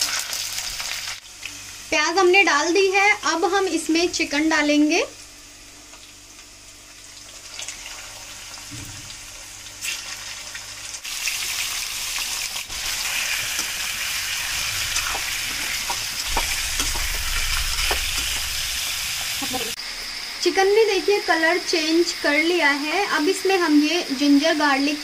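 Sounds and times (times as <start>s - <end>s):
chicken frying in oil: 0.0s - 3.4s, 5.6s - 19.8s.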